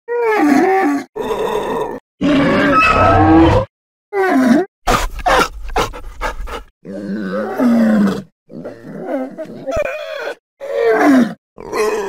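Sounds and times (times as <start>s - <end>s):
dinosaur calls: 0.3s - 4.6s.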